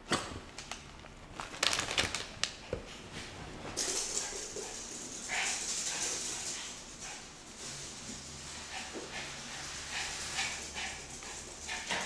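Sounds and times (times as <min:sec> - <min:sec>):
steady hiss: 0:03.8 - 0:12.0.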